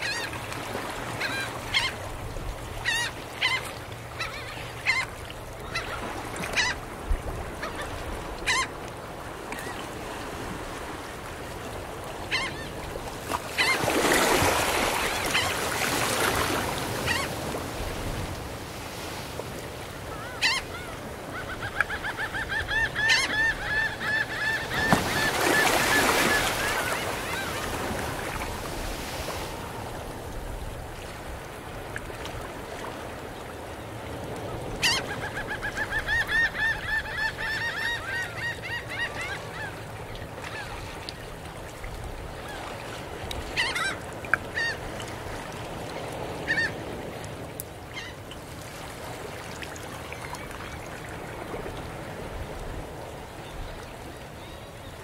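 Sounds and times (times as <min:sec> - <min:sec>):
seagulls calling: 0:00.0 - 0:02.1, 0:02.8 - 0:06.8, 0:07.5 - 0:08.8, 0:12.3 - 0:12.8, 0:13.5 - 0:17.5, 0:20.1 - 0:28.6, 0:34.5 - 0:40.9, 0:43.5 - 0:45.0, 0:46.4 - 0:47.0
ocean waves washing onto shore: 0:00.0 - 0:35.6, 0:39.4 - 0:55.0.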